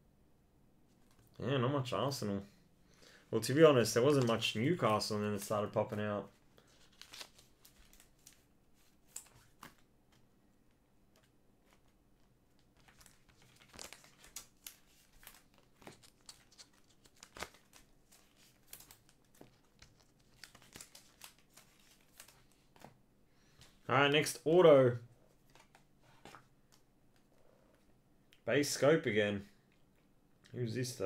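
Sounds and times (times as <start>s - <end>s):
trading cards crinkling and clicking: 3.8s - 10.3s, 11.1s - 23.8s, 25.3s - 27.4s.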